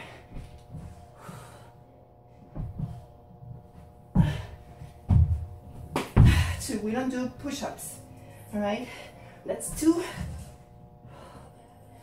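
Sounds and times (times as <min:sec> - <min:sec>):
person breathing hard and gasping: 0:10.2 - 0:12.0.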